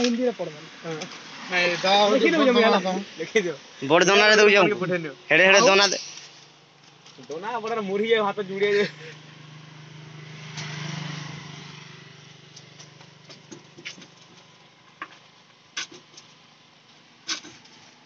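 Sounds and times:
vehicle passing: 0:00.8 - 0:03.2, 0:08.4 - 0:12.8.

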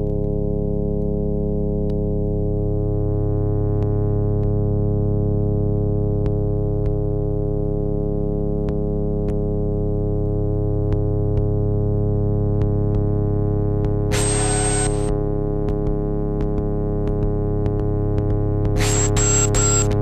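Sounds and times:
short clicks: 0:14.1 - 0:15.2, 0:18.8 - 0:20.0
low synth drone: 0:14.1 - 0:16.3, 0:18.7 - 0:20.0.

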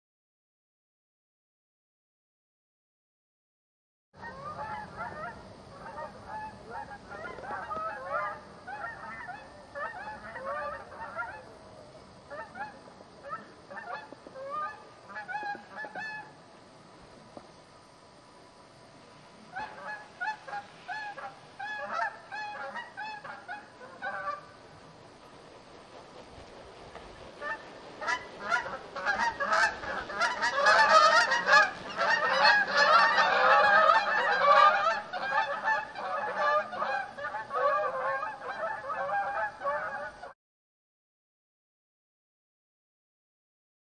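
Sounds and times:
geese honking: 0:04.2 - 0:11.6, 0:12.3 - 0:16.4, 0:19.5 - 0:24.6, 0:27.0 - 0:40.4.

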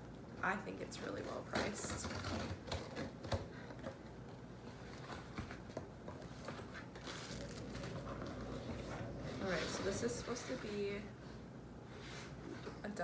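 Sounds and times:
cardboard box rustling and scraping: 0:04.7 - 0:10.9.

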